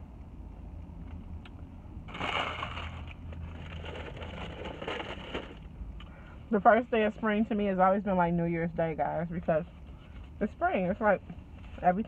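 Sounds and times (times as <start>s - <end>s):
rustling and crinkling: 2.1s - 5.7s.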